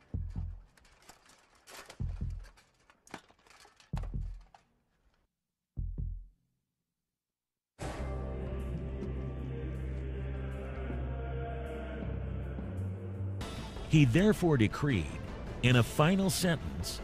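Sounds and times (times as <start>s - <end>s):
music: 0.0s - 1.2s, 1.8s - 2.6s, 5.8s - 6.3s, 7.8s - 17.0s
deep soundtrack thuds: 5.8s - 6.3s.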